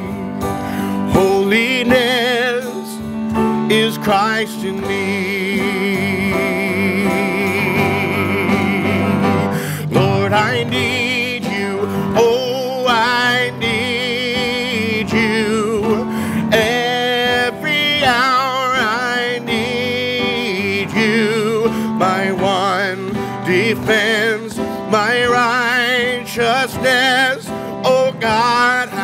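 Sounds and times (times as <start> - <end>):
man singing worship song: 0.0 - 29.0
upright piano: 0.0 - 29.0.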